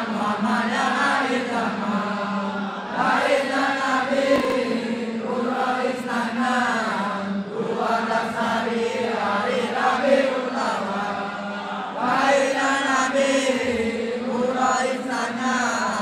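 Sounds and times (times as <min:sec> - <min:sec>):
men chanting in unison: 0:00.0 - 0:16.0.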